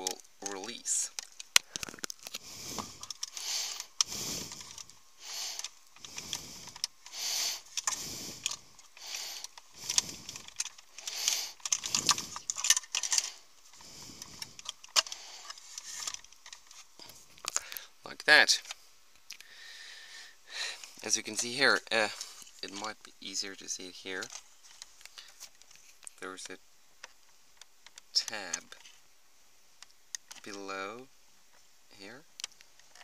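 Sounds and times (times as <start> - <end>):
plastic connector rattling and clicking: 7.7 - 16.8.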